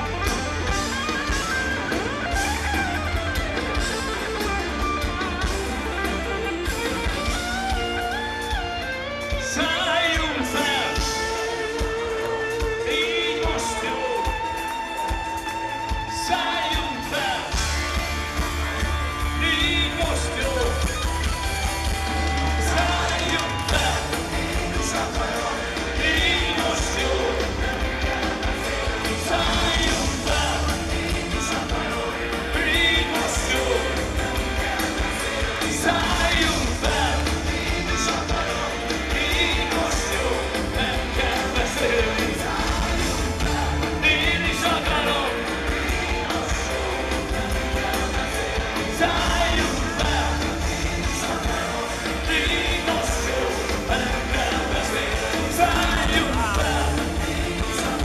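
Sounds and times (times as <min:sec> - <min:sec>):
boomy bass: 0:00.0 - 0:14.5, 0:15.2 - 0:58.0
live rock band: 0:00.0 - 0:58.0
man singing: 0:09.4 - 0:14.6, 0:16.0 - 0:17.7, 0:19.1 - 0:21.0, 0:22.5 - 0:58.0.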